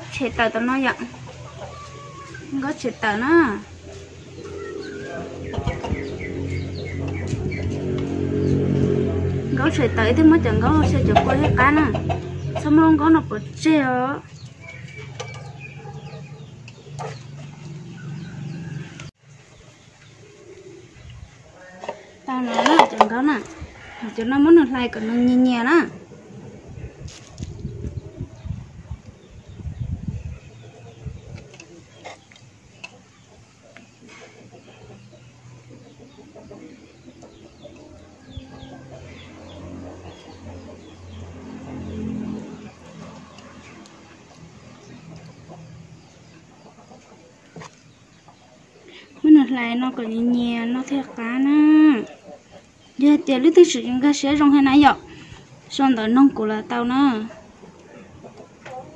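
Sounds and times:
chickens clucking: 0.0s - 58.9s
small birds chirping: 0.0s - 58.9s
steady low sound: 3.6s - 14.1s.

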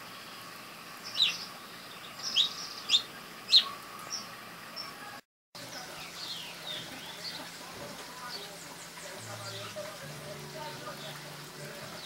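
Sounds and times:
songbirds chirping: 0.0s - 12.0s.

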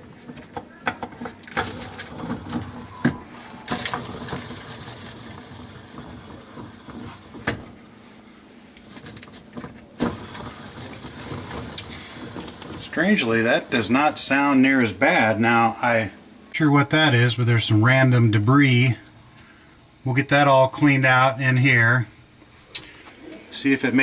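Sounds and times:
pump impeller whirring hiss: 1.2s - 20.0s.

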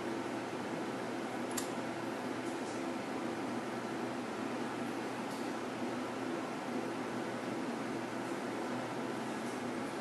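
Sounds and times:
light click: 1.5s - 1.8s.

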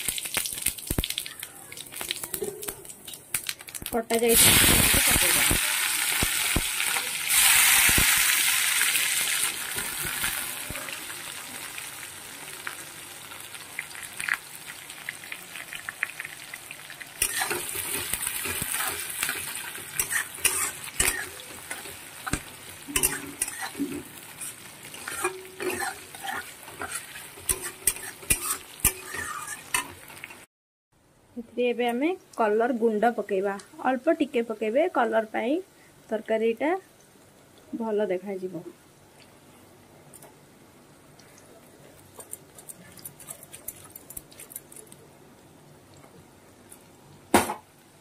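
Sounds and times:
onions sizzling in hot oil: 0.0s - 30.5s
metal spatula scraping pan: 17.2s - 30.4s.

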